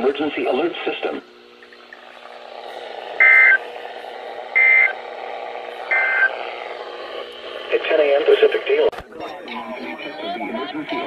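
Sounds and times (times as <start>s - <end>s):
steady broadcast hum: 0.0s - 11.0s
digital data tone bursts: 3.2s - 3.8s, 4.5s - 8.8s.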